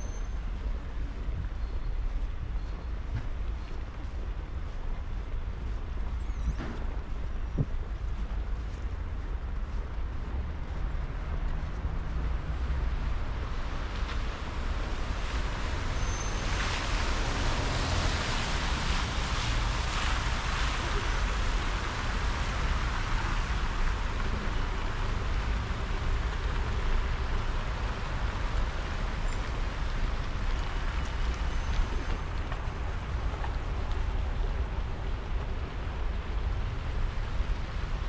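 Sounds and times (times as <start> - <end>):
road traffic rumble: 0.0 - 38.0
tyre hiss of passing vehicle: 15.2 - 24.7.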